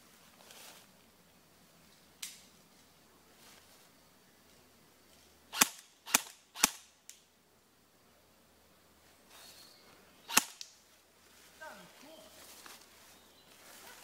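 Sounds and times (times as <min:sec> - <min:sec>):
airsoft rifle shots: 0:05.5 - 0:06.9, 0:10.3 - 0:10.7.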